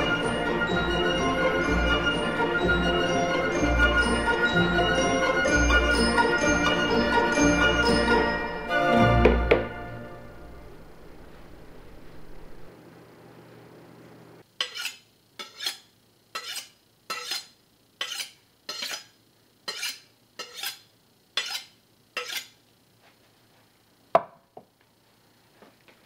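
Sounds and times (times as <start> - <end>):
knife scraping on honing steel: 14.6 - 22.6.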